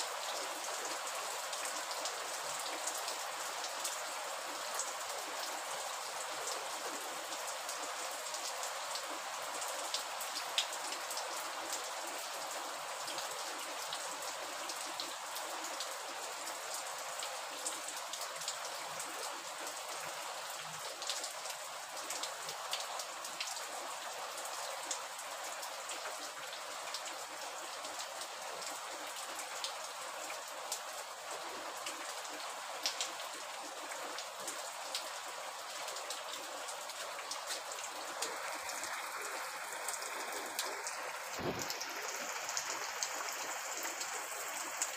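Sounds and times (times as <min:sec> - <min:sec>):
steady rain falling: 0:00.0 - 0:44.9
raindrops tapping a surface: 0:39.9 - 0:43.2.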